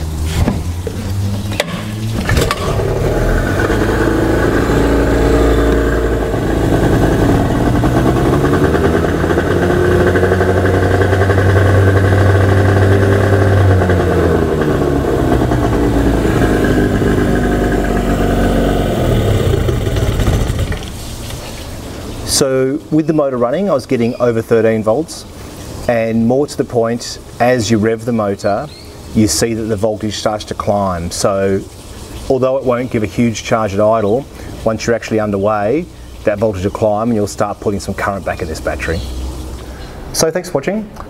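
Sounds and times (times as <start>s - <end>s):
outboard motor revving: 0.0s - 21.0s.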